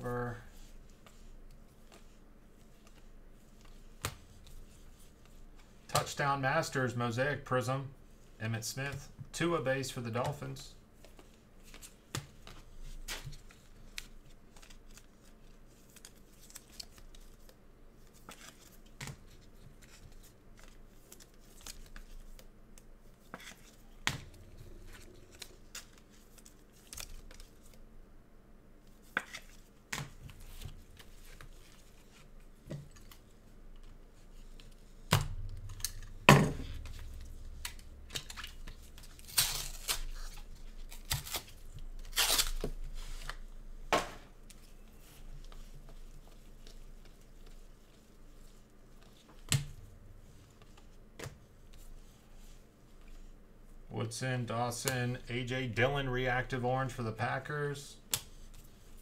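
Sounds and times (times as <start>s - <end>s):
wrappers tearing and crinkling: 36.7s - 43.3s.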